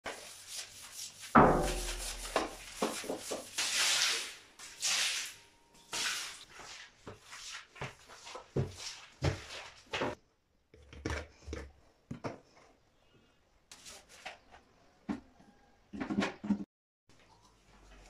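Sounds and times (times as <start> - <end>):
squeegee swishing water on tiles: 0.0 - 10.2.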